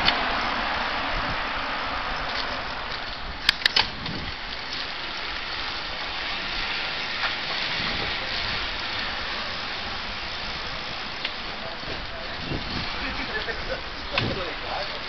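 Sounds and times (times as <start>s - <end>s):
bicycle tyre noise on pavement: 0.0s - 15.0s
rushing wind: 0.0s - 15.0s
sharp clicks: 2.3s - 4.2s.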